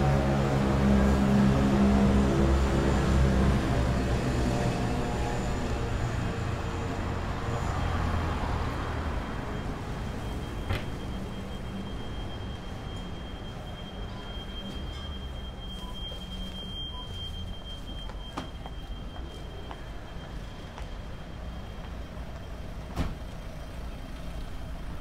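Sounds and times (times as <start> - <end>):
vehicle engine hum: 19.1 - 25.0.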